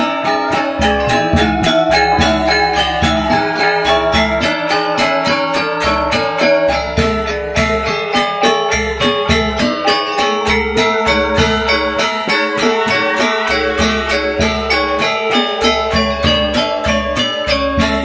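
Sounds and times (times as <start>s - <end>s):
bamboo flutes: 0.0s - 8.4s, 10.8s - 18.0s
metallophones ringing: 0.0s - 18.0s
hand drum low strokes: 0.8s - 4.4s.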